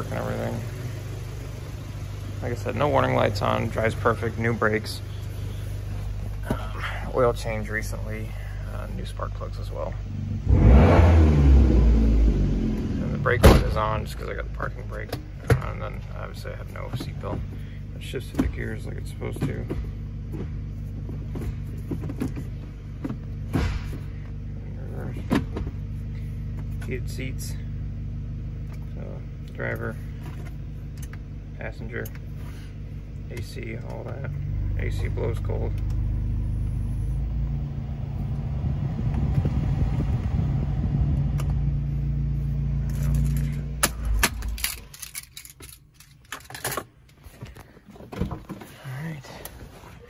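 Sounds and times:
car engine idling: 0.0 - 50.0
gear lever clicks and clunks: 42.9 - 48.7.

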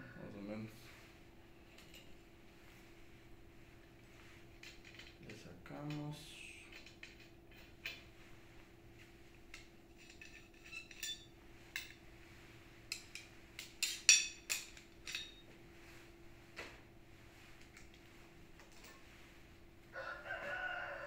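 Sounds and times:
faint steady hum: 0.0 - 21.0
hard parts clinking: 4.6 - 8.1, 9.5 - 12.0, 12.9 - 15.6.

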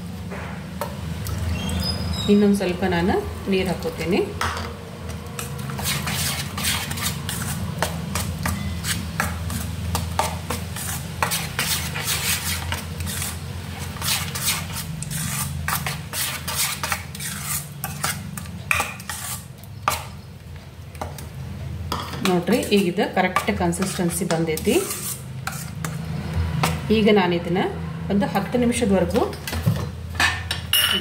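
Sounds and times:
spoon scraping metal pot: 5.4 - 20.1, 21.9 - 26.0.

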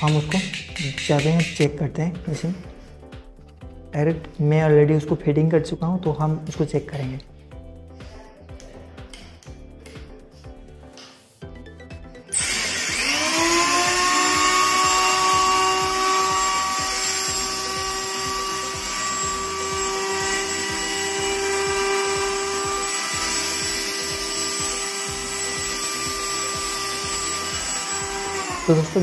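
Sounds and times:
electric planer motor whine: 12.3 - 29.0.

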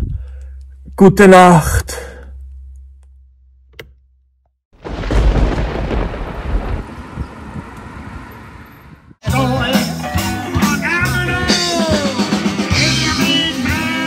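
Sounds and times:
loud rumbling crash: 4.8 - 7.3
rock music with singing: 9.2 - 14.0.

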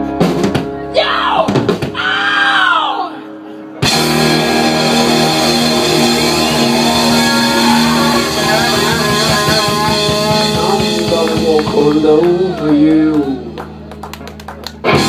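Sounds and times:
live rock band playing: 0.0 - 2.2, 3.2 - 15.0
heavy drum hits: 3.8 - 12.0.

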